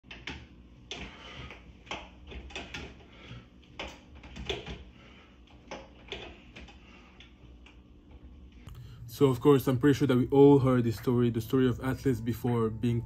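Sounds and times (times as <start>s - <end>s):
pull-up bar creaking and knocking: 0.0s - 8.2s.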